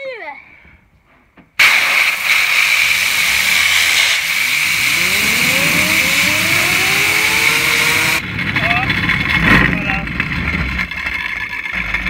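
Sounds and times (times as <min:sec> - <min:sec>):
compressed air blow gun hissing: 0:01.6 - 0:04.9
fidget spinners whining: 0:02.4 - 0:08.2.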